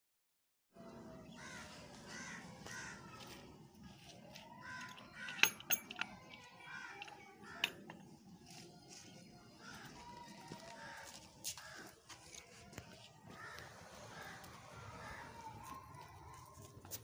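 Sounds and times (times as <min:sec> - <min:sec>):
hatch latch clicks: 0:05.3 - 0:06.2.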